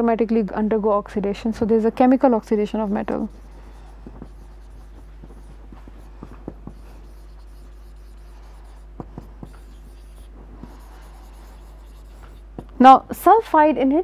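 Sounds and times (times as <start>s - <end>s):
steady low hum: 0.0s - 14.0s
marker squeaking on whiteboard: 2.6s - 12.6s.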